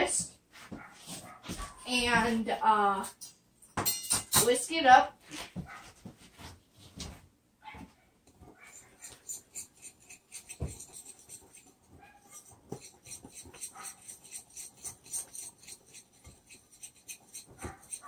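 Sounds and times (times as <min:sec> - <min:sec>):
whisk scratching in glass bowl: 0:08.5 - 0:18.0
whisk knocking against bowl: 0:09.0 - 0:18.0.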